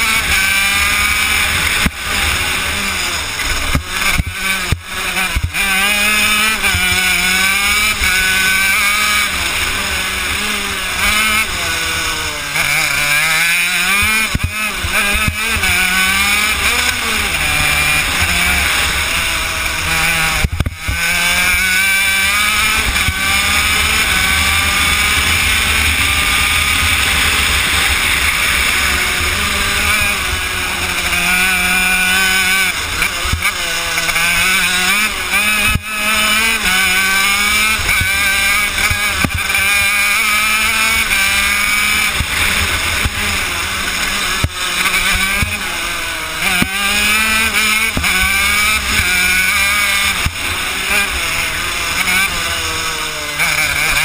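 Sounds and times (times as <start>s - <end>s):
kart engine revving: 0.0s - 54.0s.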